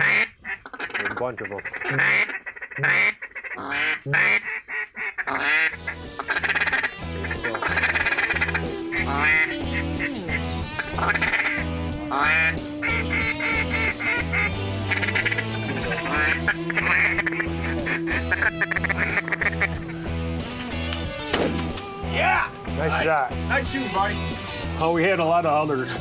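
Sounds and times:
duck quacking: 0.0s - 20.1s
music with bass beat: 5.7s - 21.3s.

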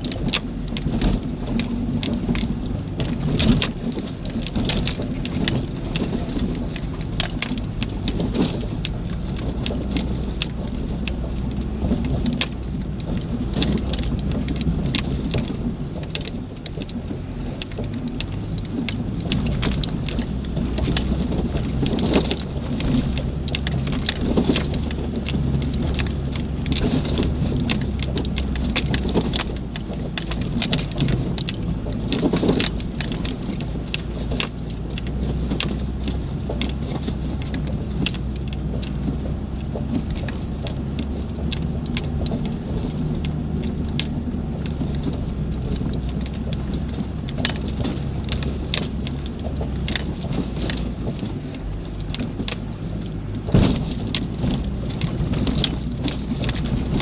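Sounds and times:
car engine droning: 0.0s - 57.0s
heavy thumps over bumps: 0.0s - 57.0s
knocks and rattles from tyres: 0.0s - 57.0s.

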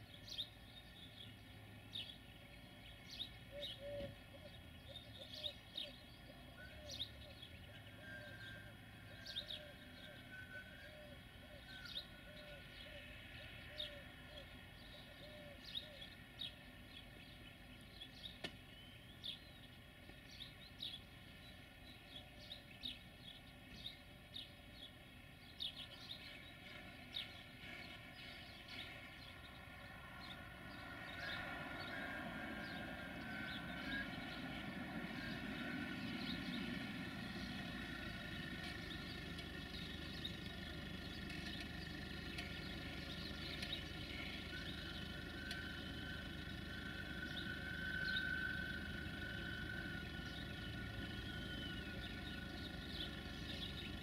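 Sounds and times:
birds chirping: 0.0s - 54.0s
diesel locomotive rumble: 16.6s - 54.0s.

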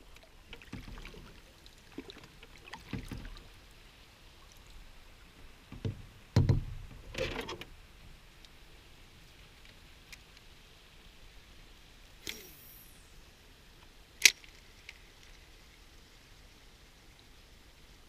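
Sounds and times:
paddle knocking on canoe: 2.8s - 3.4s, 5.7s - 7.1s.

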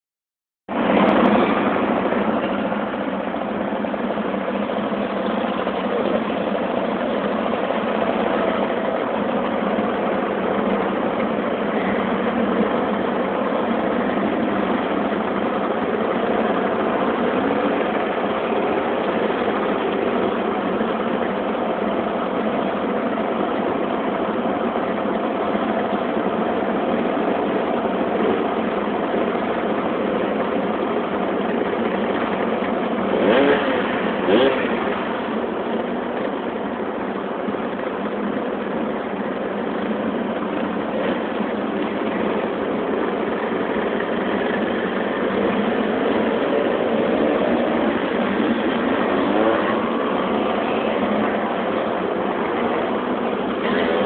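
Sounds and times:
motor scooters riding past: 31.2s - 36.5s, 40.9s - 54.0s.

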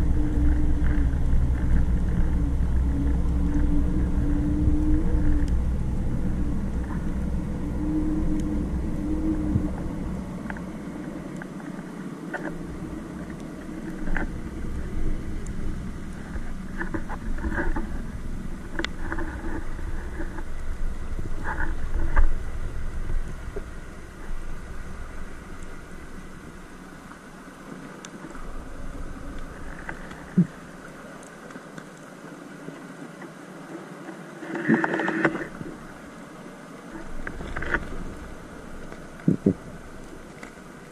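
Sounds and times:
steady hum: 0.0s - 40.9s
underwater low rumble: 0.0s - 40.9s
faint clicks: 9.4s - 20.6s, 25.1s - 40.9s.

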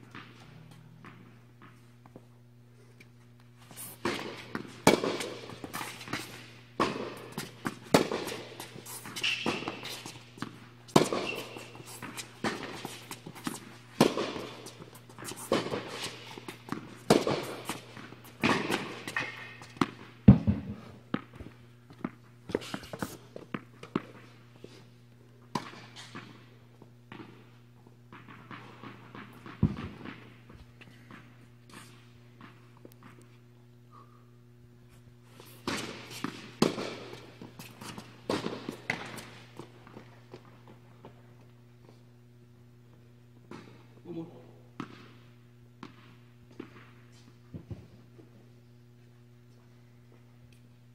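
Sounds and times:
steady low hum: 0.0s - 50.9s
racket hitting tennis ball: 3.6s - 21.3s, 35.4s - 40.4s
ball bouncing: 4.0s - 22.2s
shoe squeaks: 8.6s - 10.4s, 11.0s - 13.5s.

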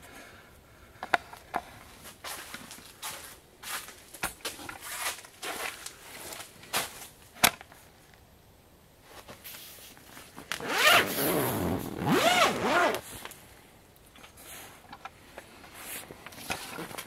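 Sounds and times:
zipper pulled open: 10.5s - 13.0s.

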